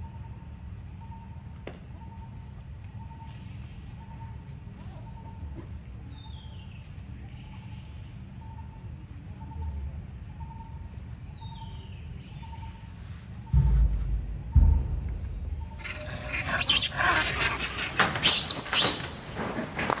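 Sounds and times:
high insect drone: 0:00.0 - 0:20.0
low rumble: 0:13.5 - 0:17.7
bird's falling stepped call: 0:15.6 - 0:19.2.

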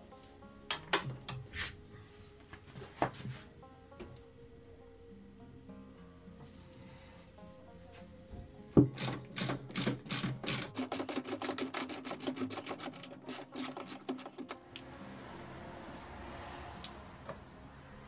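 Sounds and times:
rapid metallic clicks: 0:08.9 - 0:14.9.

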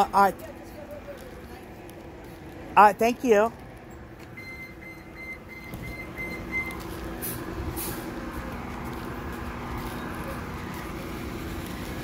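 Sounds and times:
bus engine idling: 0:00.0 - 0:12.0
short high beeps: 0:04.4 - 0:06.8.

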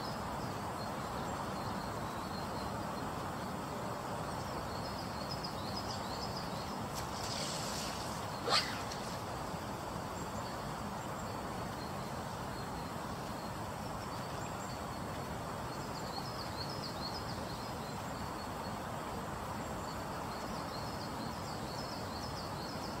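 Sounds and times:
small birds chirping: 0:00.0 - 0:23.0
river rushing: 0:03.7 - 0:14.0
fishing rod swishing through air: 0:06.9 - 0:09.6.

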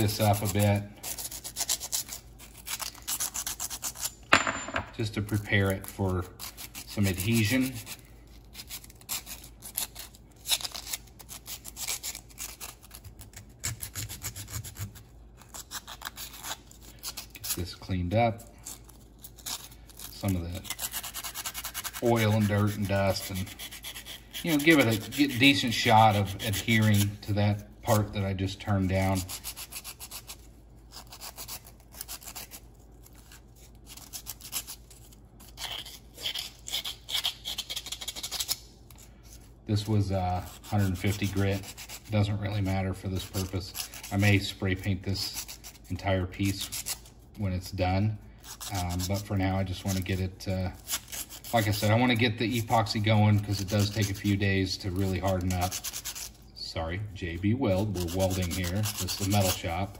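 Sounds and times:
emery cloth scratching metal: 0:00.0 - 0:04.4, 0:05.0 - 0:59.9
emery cloth rubbing metal: 0:57.6 - 0:59.9.

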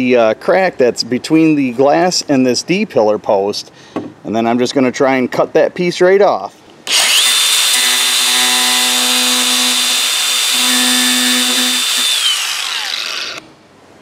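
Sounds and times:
angle grinder whine: 0:06.9 - 0:13.5.

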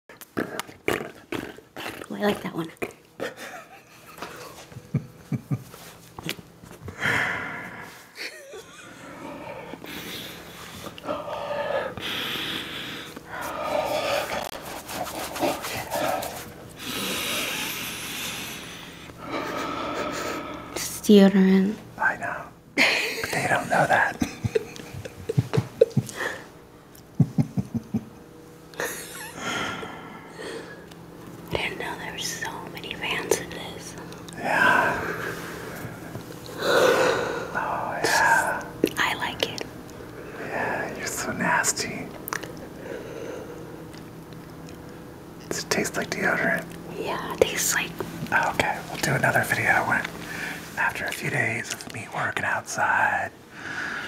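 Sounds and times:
man and woman laughing: 0:03.2 - 0:05.9, 0:08.2 - 0:09.4, 0:22.8 - 0:26.5, 0:27.1 - 0:29.8.

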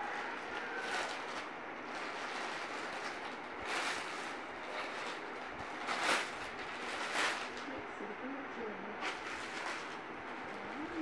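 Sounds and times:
plastic packet rustling and crinkling: 0:00.0 - 0:07.8, 0:09.0 - 0:11.0.

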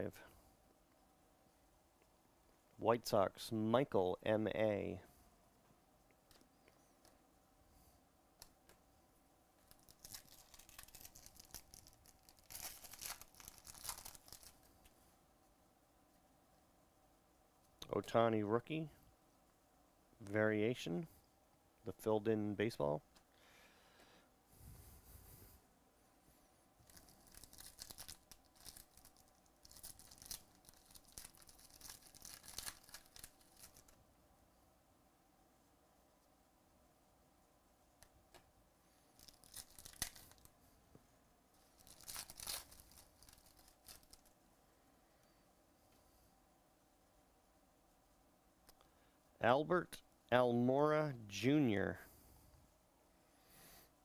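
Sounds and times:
foil wrapper tearing and crinkling: 0:09.7 - 0:14.6, 0:26.8 - 0:34.0, 0:39.1 - 0:40.5, 0:41.8 - 0:44.4.

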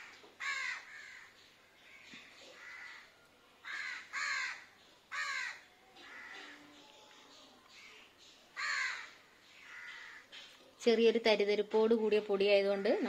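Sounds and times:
crows cawing: 0:00.0 - 0:06.8, 0:08.6 - 0:10.5, 0:12.7 - 0:13.0.

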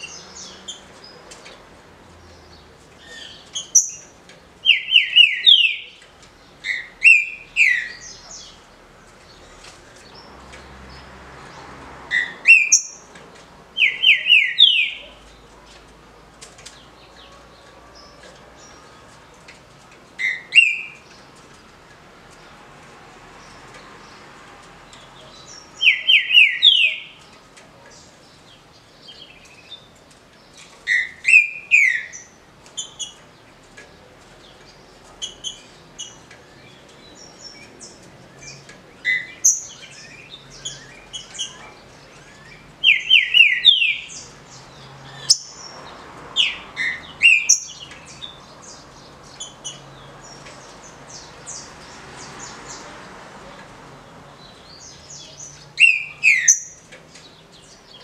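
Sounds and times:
high bird chirps: 0:03.0 - 0:04.1, 0:04.7 - 0:06.0, 0:12.1 - 0:13.1, 0:46.4 - 0:48.4, 0:54.7 - 0:56.8
bird whistling song: 0:03.1 - 0:04.0, 0:04.7 - 0:05.9, 0:12.2 - 0:13.0, 0:20.2 - 0:21.0, 0:46.4 - 0:47.8, 0:55.8 - 0:56.7.

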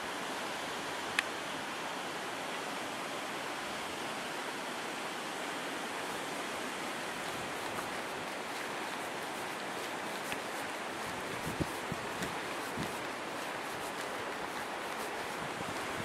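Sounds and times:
steady rushing noise: 0:05.9 - 0:16.0.

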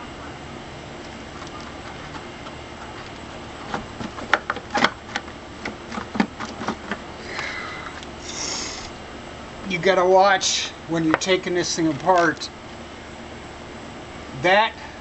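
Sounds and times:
low background hum: 0:00.0 - 0:15.0
engine parts clicking and knocking: 0:01.0 - 0:08.1.

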